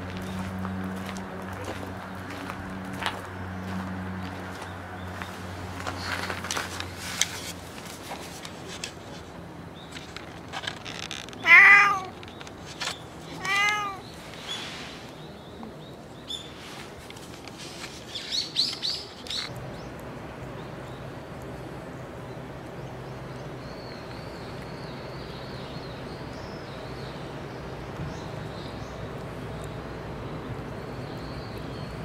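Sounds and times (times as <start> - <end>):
cat meowing: 11.4 - 12.2, 13.4 - 14.1.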